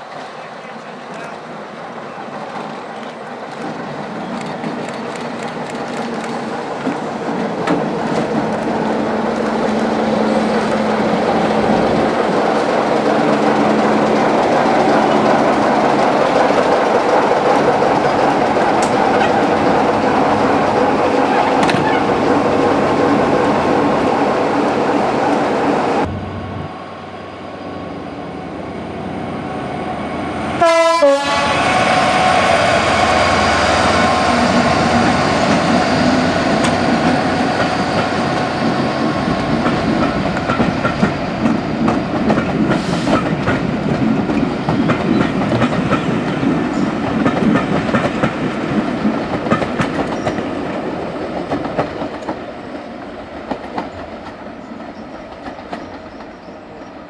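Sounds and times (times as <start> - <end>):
diesel locomotive engine running: 4.4 - 50.4
train horn blast: 30.6 - 33.2.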